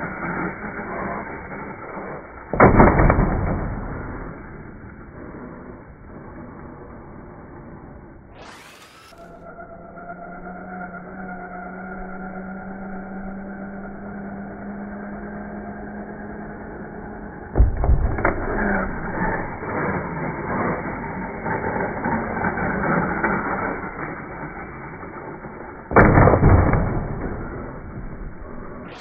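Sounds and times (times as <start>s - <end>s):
loud thud: 2.5s - 4.4s, 17.6s - 19.3s, 25.9s - 29.0s
loud crash landing: 2.5s - 4.5s, 25.9s - 29.0s
toy truck motor hum: 5.3s - 17.5s, 18.4s - 25.8s.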